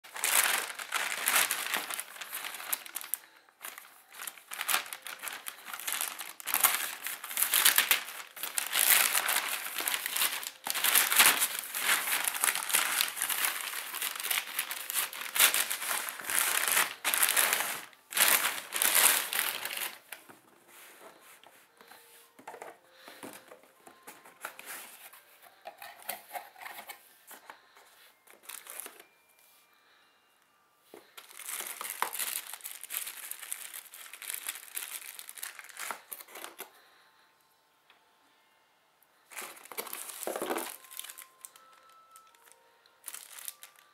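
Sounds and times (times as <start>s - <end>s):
plastic mailer bag crinkling: 0.0s - 20.3s, 28.3s - 29.2s, 31.1s - 36.9s, 39.3s - 43.9s
cardboard box handling rustle: 39.4s - 41.2s.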